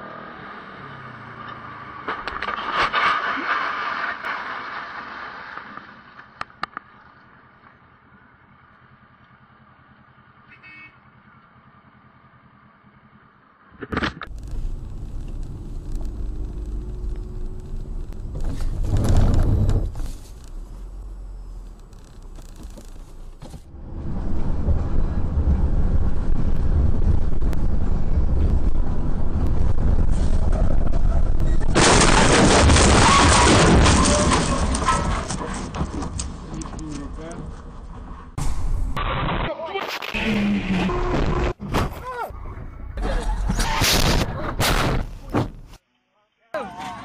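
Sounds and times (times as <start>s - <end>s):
traffic noise: 0.0s - 31.9s, 33.1s - 39.0s
car road and engine noise: 0.0s - 39.2s, 40.0s - 45.9s
low rumble inside bus: 7.0s - 32.0s, 40.2s - 45.8s.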